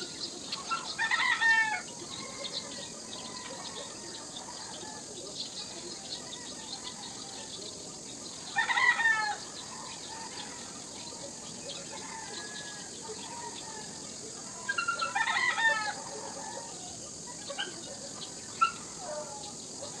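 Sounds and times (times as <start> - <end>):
rooster crowing: 0.9 - 5.1, 8.5 - 10.8, 11.8 - 13.8, 15.0 - 16.8.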